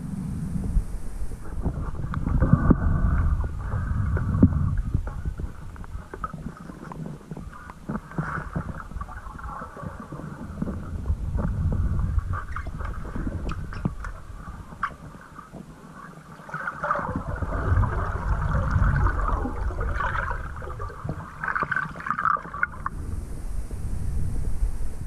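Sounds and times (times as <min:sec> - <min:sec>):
underwater rumbling and gurgling: 0:00.0 - 0:25.0
sharp clicks underwater: 0:01.4 - 0:23.0
bubbly surges: 0:16.3 - 0:23.4.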